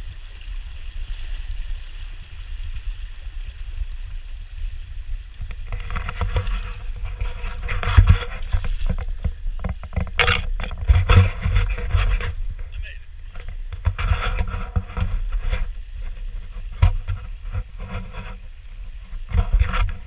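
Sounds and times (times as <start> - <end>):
river water splashing around legs: 0.0 - 13.8
low microphone rumble: 1.2 - 20.0
scraping through dry brush: 4.5 - 20.0.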